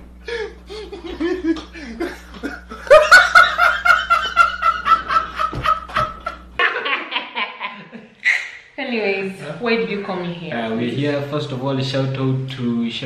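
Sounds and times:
men laughing hard: 0.3s - 8.6s.

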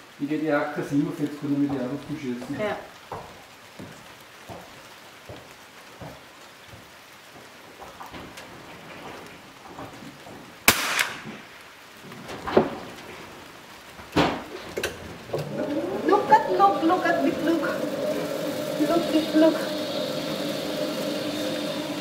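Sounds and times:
rifle shot: 10.7s - 11.3s.

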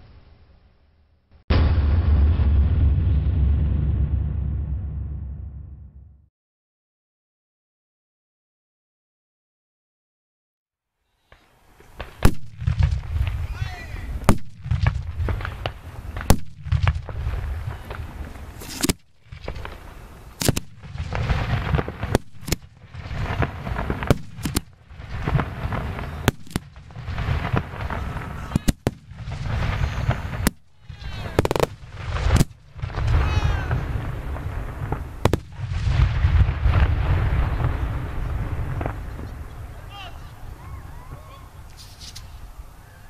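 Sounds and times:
firework bangs: 1.4s - 6.2s, 11.2s - 43.0s
low rumble: 1.5s - 6.3s
firework crackling: 11.2s - 43.0s.

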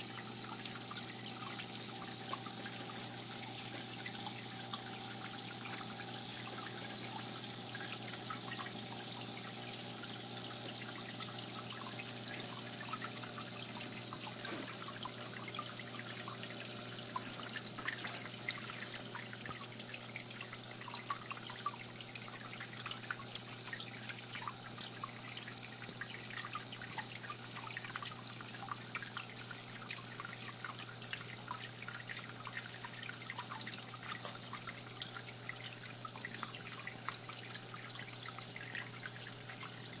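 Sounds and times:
water trickling and dripping: 0.0s - 40.0s.

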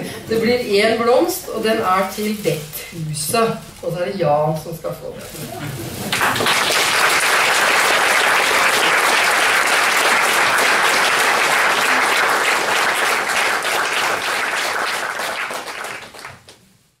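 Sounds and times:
audience applauding: 5.7s - 16.6s.

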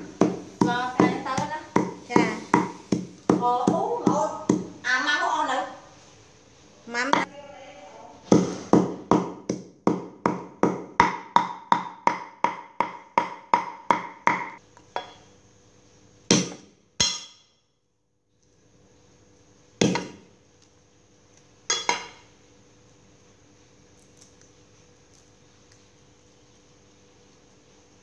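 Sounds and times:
cleaver chopping on wooden board: 0.2s - 4.7s, 8.3s - 14.6s, 16.3s - 16.7s, 19.8s - 20.2s.

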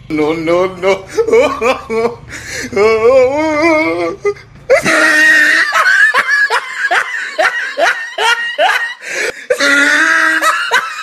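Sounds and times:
high-pitched laughter: 3.8s - 11.0s.

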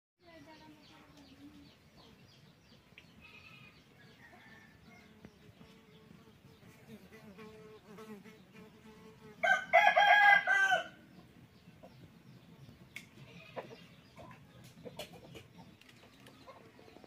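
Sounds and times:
rooster crowing: 3.4s - 5.2s, 9.4s - 11.0s.

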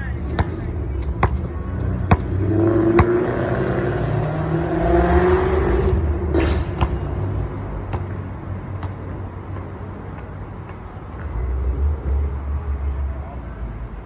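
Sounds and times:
basketball bouncing: 0.2s - 3.3s, 6.3s - 10.8s.

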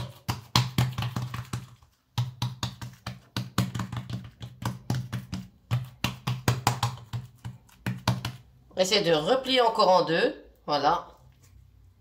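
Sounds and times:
hands patting dough on wood: 0.0s - 8.7s.

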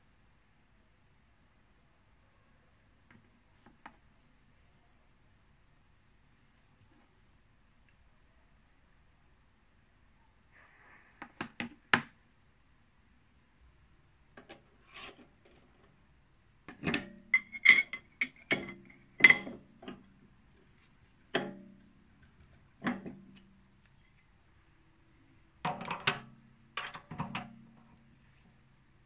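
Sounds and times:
spanner clinking on metal: 16.8s - 20.0s.

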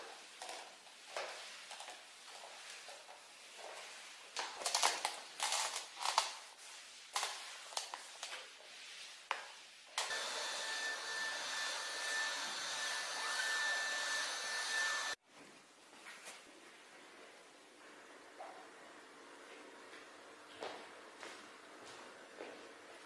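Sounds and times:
mop swishing on wooden floor: 0.0s - 23.0s
electric motor whirring: 10.0s - 15.2s.

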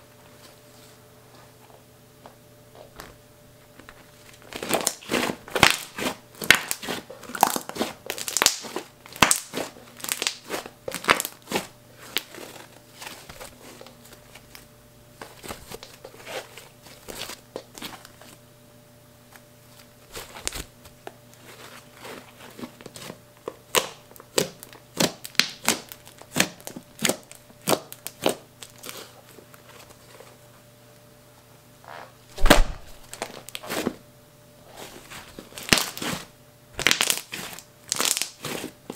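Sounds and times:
slime squeezed by hand: 32.4s - 33.8s.

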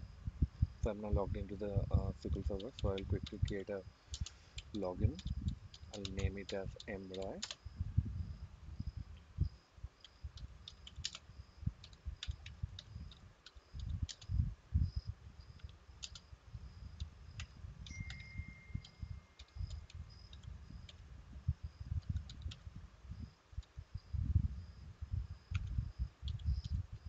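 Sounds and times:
computer keyboard typing: 2.3s - 7.6s, 10.0s - 11.2s, 11.8s - 14.3s, 15.6s - 16.3s, 17.0s - 21.0s, 22.0s - 22.6s, 25.5s - 26.8s.

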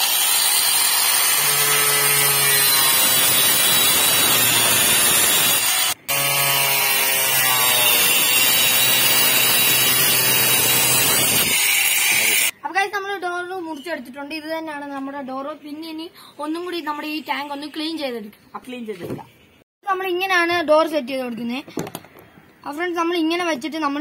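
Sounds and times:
angle grinder cutting plastic: 0.0s - 12.5s.

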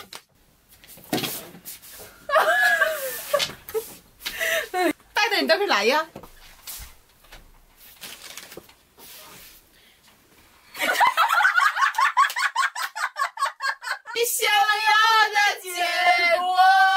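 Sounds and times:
women laughing loudly: 2.3s - 5.0s, 10.8s - 14.2s.

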